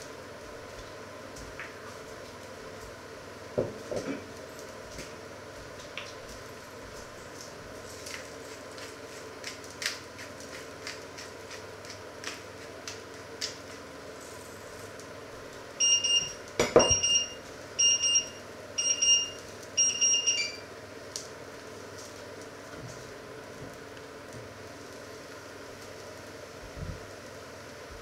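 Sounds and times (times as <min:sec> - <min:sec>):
kitchen timer beeping: 0:15.8 - 0:20.7.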